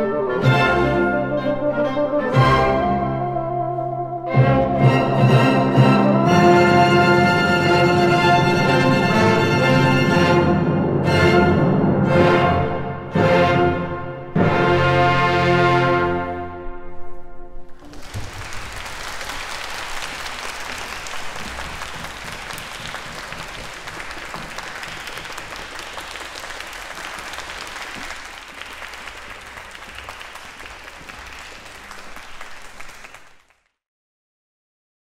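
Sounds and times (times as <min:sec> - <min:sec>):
orchestra with solo bassoon: 0:00.0 - 0:18.1
audience applauding: 0:17.8 - 0:33.8.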